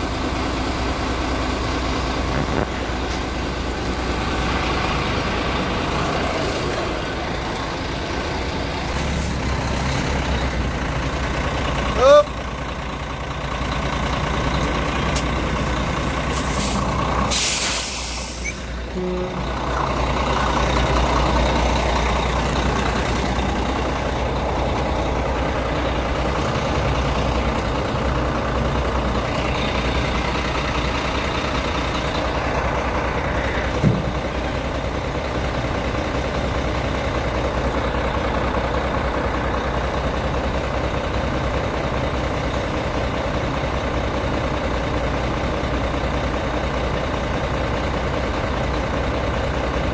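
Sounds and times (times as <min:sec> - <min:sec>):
heavy diesel engines running: 0:00.0 - 0:49.9
air brakes hissing: 0:16.3 - 0:18.8.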